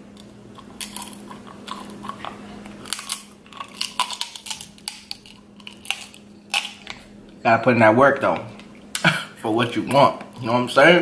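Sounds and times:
crab shell cracking: 0:00.1 - 0:07.0.

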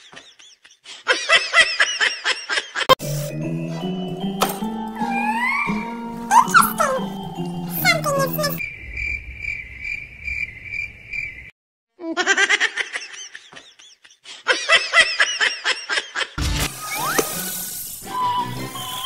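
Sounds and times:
laughing sound effect: 0:05.0 - 0:07.1
crickets chirping: 0:08.5 - 0:11.5.

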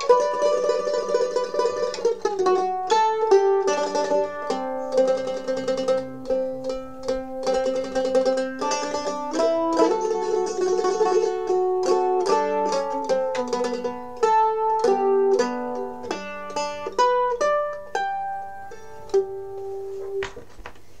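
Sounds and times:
mandolin melody: 0:00.0 - 0:21.0.

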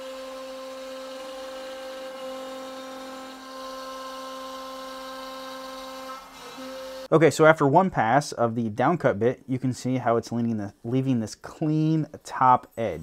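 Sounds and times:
router spindle whine: 0:00.0 - 0:07.1.

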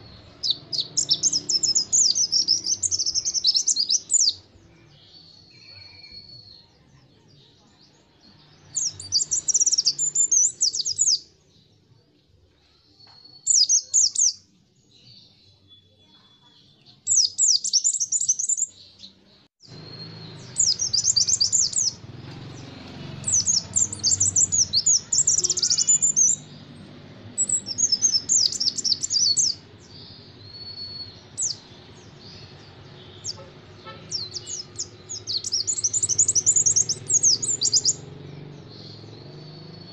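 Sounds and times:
bird chirping: 0:00.0 - 0:39.9
thin bird whistles: 0:30.5 - 0:31.6.

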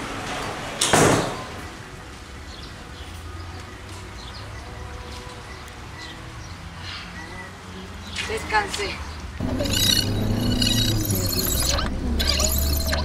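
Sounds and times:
faint chirps: 0:09.4 - 0:13.0.

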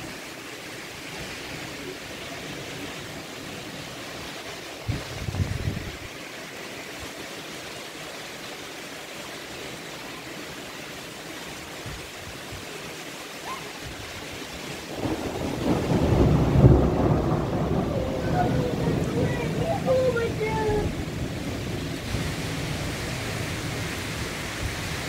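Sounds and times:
rain falling: 0:00.0 - 0:25.0.

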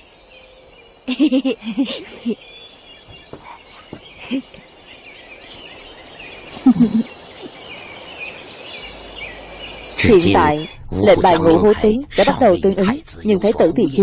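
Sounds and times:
birds chirping faintly: 0:00.0 - 0:14.0
child's voice: 0:10.2 - 0:14.0.

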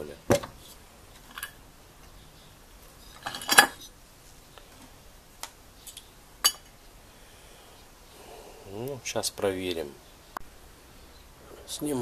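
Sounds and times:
metal parts clattering: 0:03.1 - 0:03.9
metal parts clinking on wood: 0:03.1 - 0:03.9.

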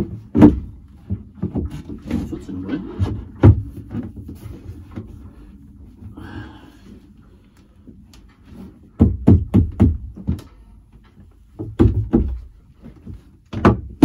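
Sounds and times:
heavy thumps on toilet base: 0:08.9 - 0:10.6, 0:11.5 - 0:14.0.

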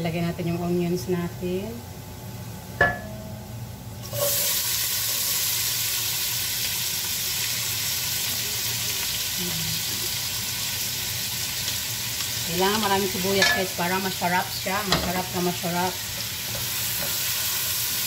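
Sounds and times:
onions sizzling in hot oil: 0:04.0 - 0:18.0.

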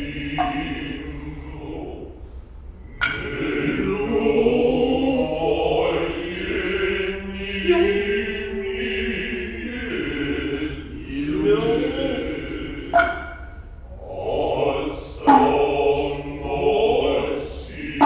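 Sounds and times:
low sustained chanting: 0:00.0 - 0:18.0
hand drum stroke: 0:12.9 - 0:13.5.

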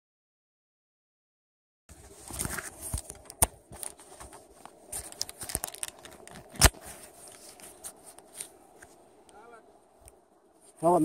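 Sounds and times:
camera rubbing on clothing: 0:01.9 - 0:09.1.

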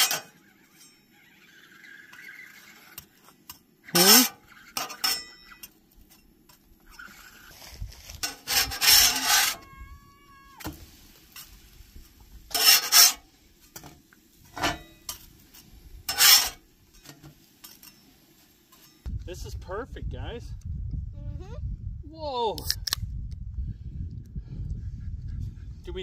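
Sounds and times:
metal spatula scraping griddle: 0:00.0 - 0:09.7, 0:10.6 - 0:19.1.

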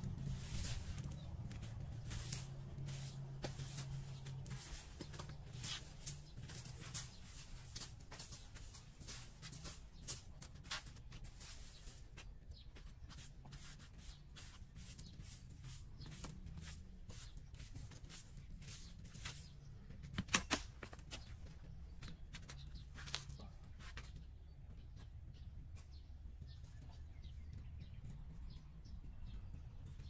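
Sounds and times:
broom sweeping concrete: 0:00.0 - 0:19.7.

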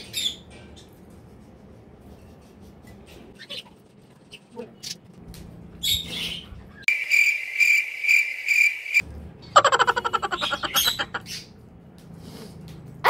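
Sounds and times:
rapid buzzing trill: 0:09.6 - 0:11.2.

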